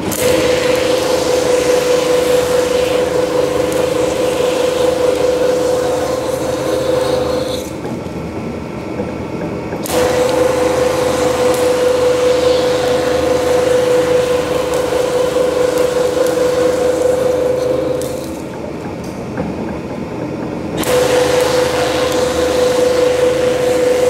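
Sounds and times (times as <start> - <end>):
machine drive whine: 0.0 - 24.0.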